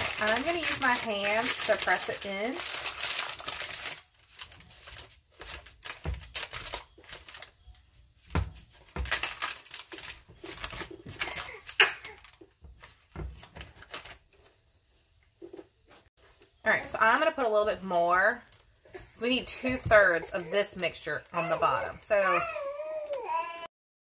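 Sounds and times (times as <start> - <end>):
parchment paper crinkling: 0.0 - 14.6.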